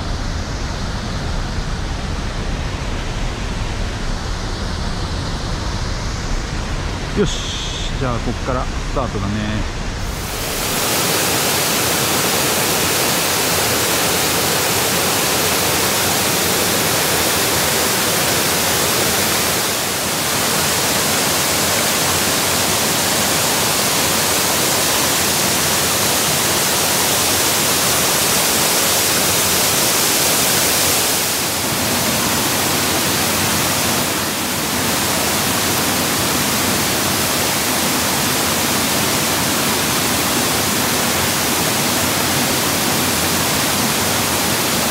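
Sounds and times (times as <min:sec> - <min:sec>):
stream water flowing: 0:10.0 - 0:44.9.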